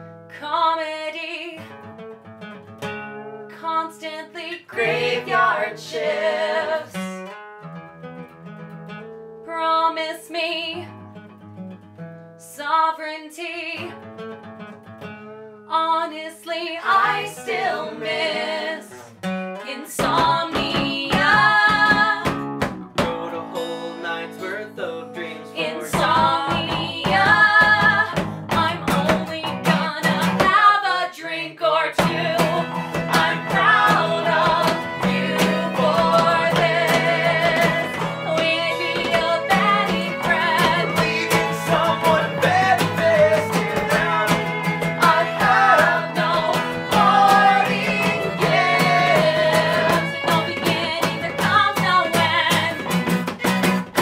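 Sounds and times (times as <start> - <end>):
strummed acoustic guitar: 0.0 - 9.6, 10.7 - 12.5, 13.7 - 15.8, 16.8 - 31.0, 31.9 - 54.0
several voices singing: 4.4 - 7.2, 16.5 - 19.1, 19.7 - 22.4, 24.3 - 28.2, 30.4 - 52.6
bass guitar: 16.9 - 30.5, 32.0 - 54.0
violin playing: 32.0 - 54.0.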